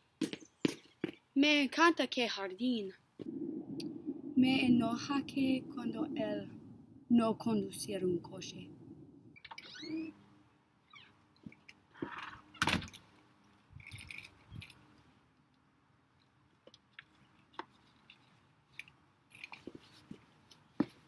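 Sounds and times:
footsteps on stone steps: 0.2 - 1.2
jingle and rustle: 13.8 - 15.0.

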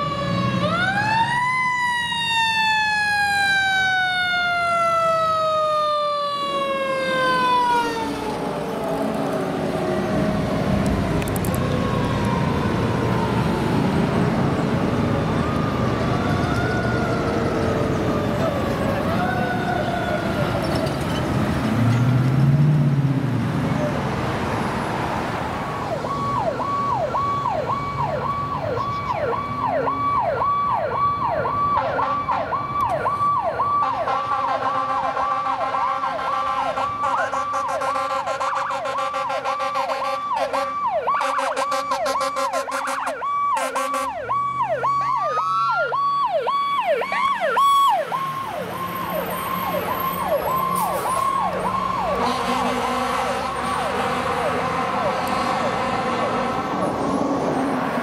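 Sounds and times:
second siren wailing: 0.0 - 21.2, 25.4 - 58.0
fire truck siren yelping: 0.0 - 21.9, 23.6 - 58.0
engine and traffic noise: 0.0 - 58.0.

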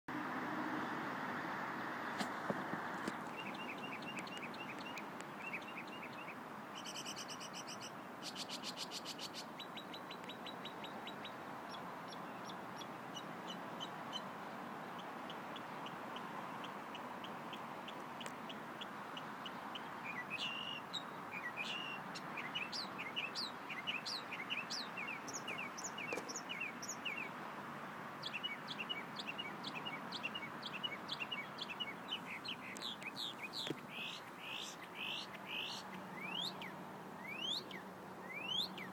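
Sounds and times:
mockingbird singing: 3.2 - 14.3, 19.5 - 27.3, 28.2 - 38.9.

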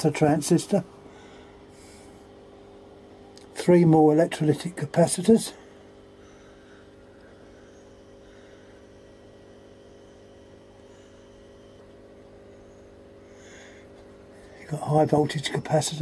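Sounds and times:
faint mains hum: 0.0 - 16.0.

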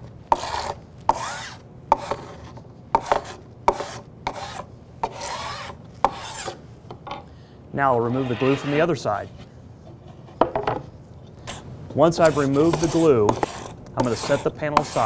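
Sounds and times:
paint scraper scraping glue off wood: 8.1 - 8.9, 12.2 - 15.0.

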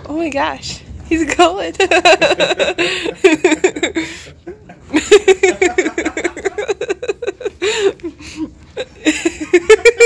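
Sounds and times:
person giggling: 2.0 - 10.0.

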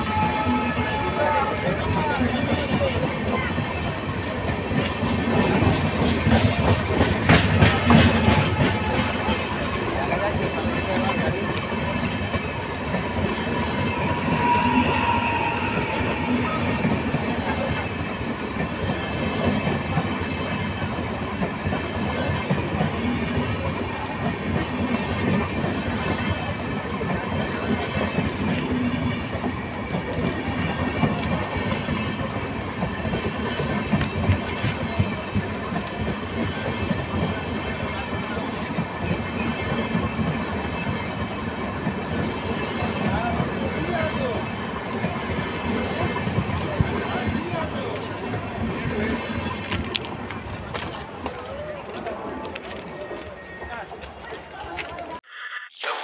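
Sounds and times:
loud train clanks: 0.0 - 54.2
train wheels clattering over rails: 1.6 - 54.3
clicks at rail joints: 49.4 - 55.1.

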